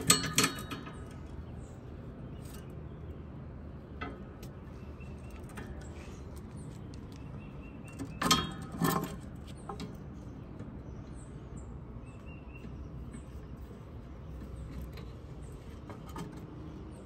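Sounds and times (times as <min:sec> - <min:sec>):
faint bird chirps: 0:04.6 - 0:08.4, 0:09.4 - 0:16.1.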